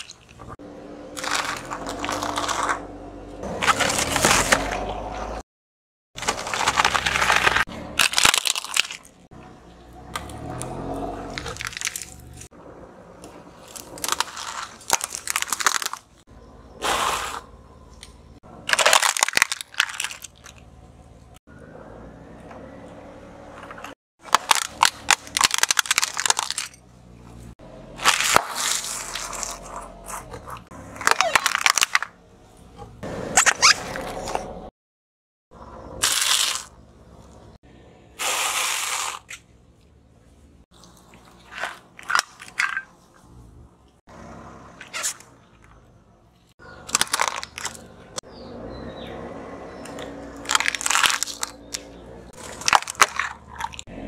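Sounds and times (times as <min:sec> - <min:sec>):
plastic crunching under car tyre: 0:00.0 - 0:05.4, 0:06.2 - 0:09.3, 0:10.1 - 0:12.5, 0:13.2 - 0:16.2, 0:18.0 - 0:20.7, 0:23.8 - 0:32.2, 0:36.0 - 0:37.4, 0:40.7 - 0:43.2, 0:46.6 - 0:48.2, 0:49.8 - 0:54.0.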